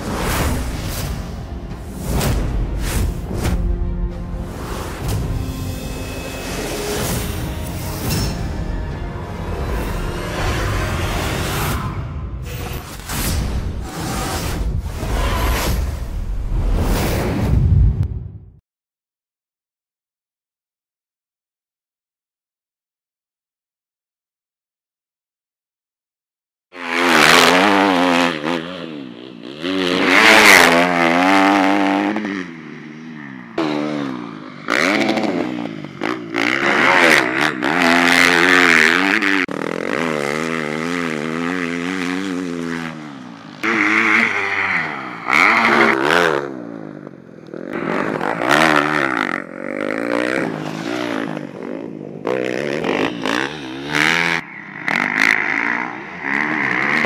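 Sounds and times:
dirt bike engine revving: 26.8 - 57.0.

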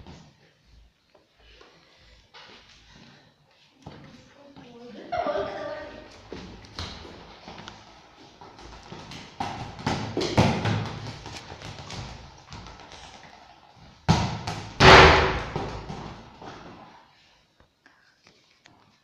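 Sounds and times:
puppy and ball thumping on stone floor: 8.5 - 16.8.

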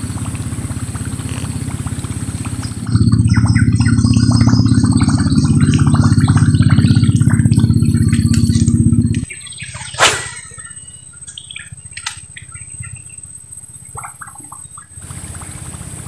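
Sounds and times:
small birds chirping: 2.6 - 15.1
brief swish: 10.0 - 10.6.

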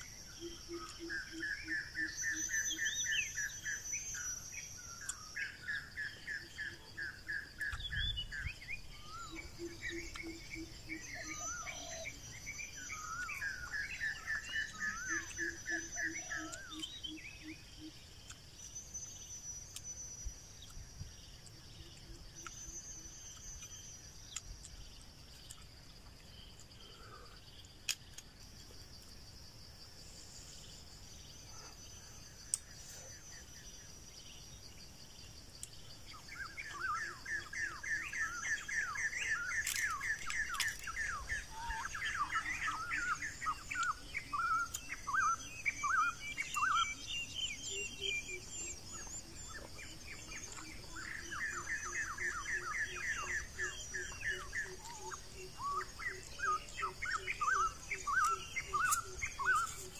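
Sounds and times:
birds chirping: 0.0 - 59.9
high-pitched insect drone: 28.7 - 59.9.

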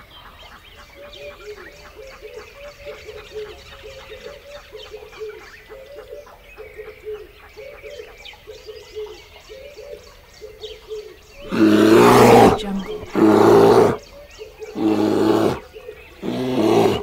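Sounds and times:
short low animal calls: 11.4 - 14.0, 14.7 - 15.6, 16.2 - 17.0.

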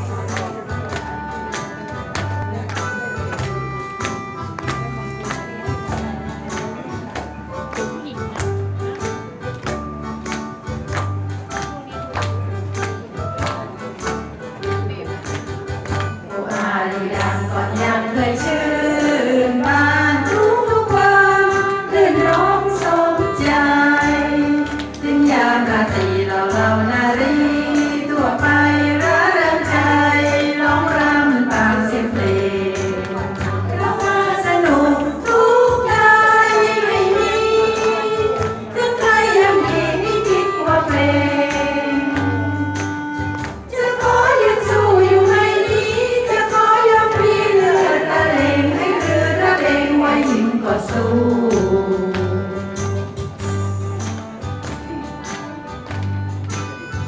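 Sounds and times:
karaoke backing track: 0.0 - 57.0
woman singing into microphone: 16.3 - 53.1.

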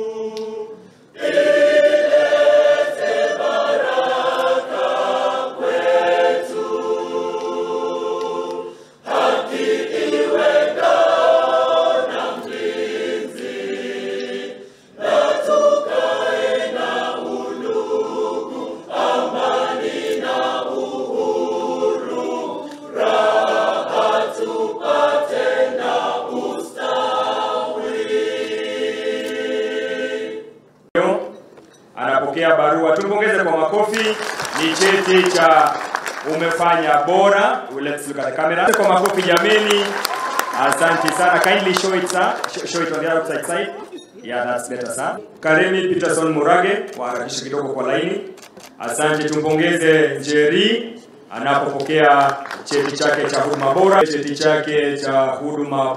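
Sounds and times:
choir singing: 0.0 - 30.7, 38.8 - 43.9.

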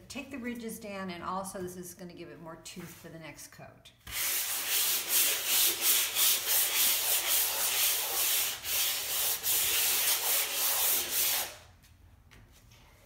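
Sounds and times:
sandpaper rubbing: 4.1 - 11.6.

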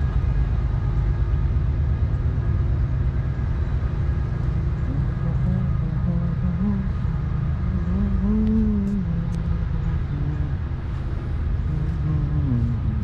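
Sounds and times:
pickup engine rumbling: 0.0 - 13.0.

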